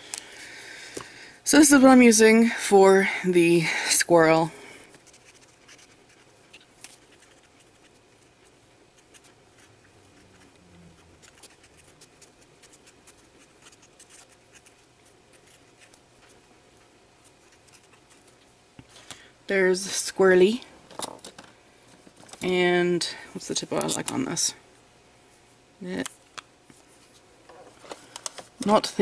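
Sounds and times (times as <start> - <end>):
low room hum: 0.0 - 29.0
marker scratching on paper: 5.0 - 16.4.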